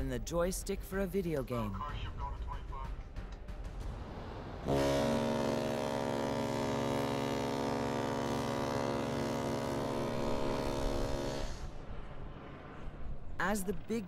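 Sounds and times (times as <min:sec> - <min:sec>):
deep ship's horn blast: 0:04.6 - 0:11.8.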